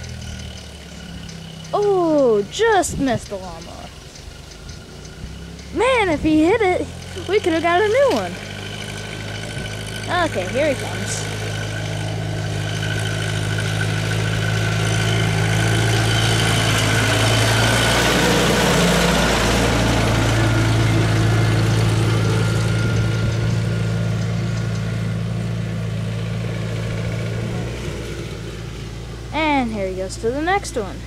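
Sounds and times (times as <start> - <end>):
tractor engine passing by: 0.0 - 31.0.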